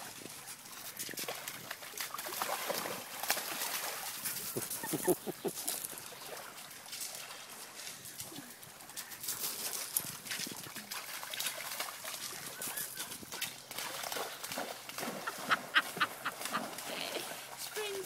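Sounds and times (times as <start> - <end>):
steps and paws crunching on stones: 3.2 - 14.4.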